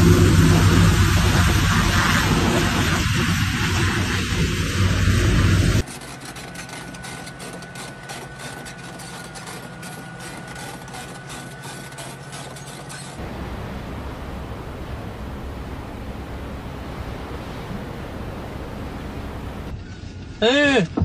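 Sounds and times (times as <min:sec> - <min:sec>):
steady rushing noise: 0:00.0 - 0:05.8, 0:13.2 - 0:19.7
diesel engine idling: 0:13.2 - 0:19.7.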